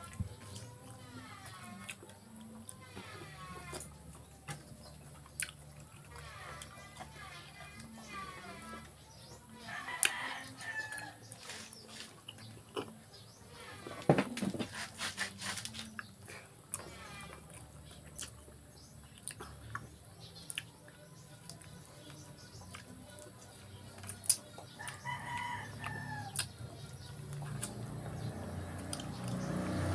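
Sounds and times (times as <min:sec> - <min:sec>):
man chewing food: 0:00.0 - 0:08.0, 0:10.9 - 0:14.0, 0:15.6 - 0:29.4
faint music: 0:00.0 - 0:29.9.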